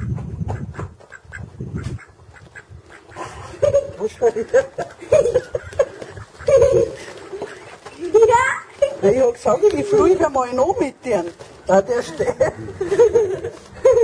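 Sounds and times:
duck quacking: 0:06.0 - 0:07.8.

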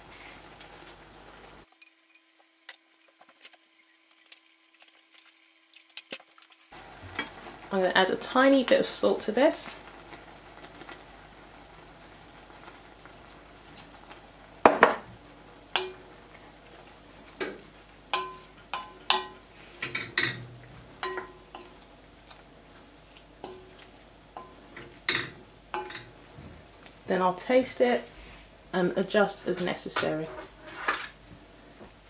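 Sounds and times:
spoon stirring vegetables in pot: 0:17.3 - 0:26.3
spoon knocking against pot: 0:17.4 - 0:20.4, 0:21.0 - 0:21.7.

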